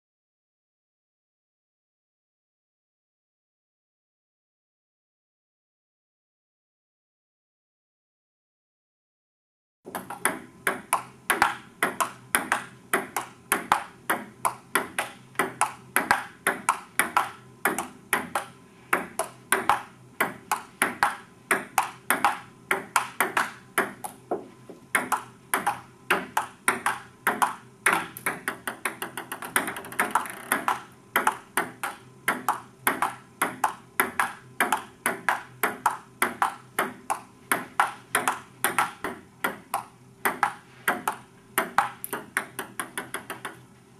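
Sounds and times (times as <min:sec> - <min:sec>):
table tennis ball clicking: 0:09.9 - 0:43.7.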